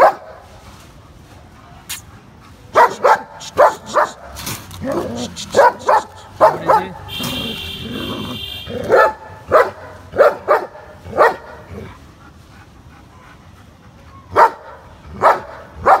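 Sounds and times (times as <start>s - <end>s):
dog barking: 0.0s - 0.4s, 2.7s - 11.7s, 14.3s - 16.0s
cat hissing: 2.8s - 6.6s.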